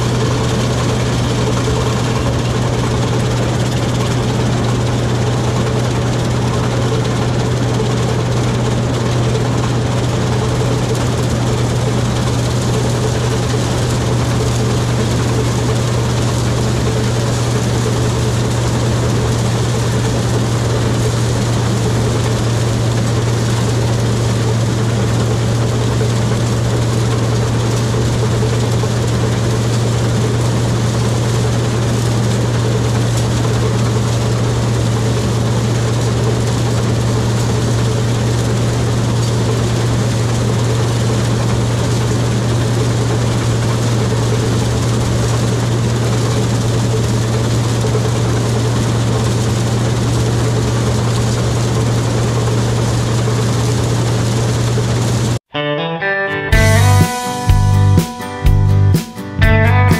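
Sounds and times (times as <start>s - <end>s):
diesel engine droning: 0.0s - 59.9s.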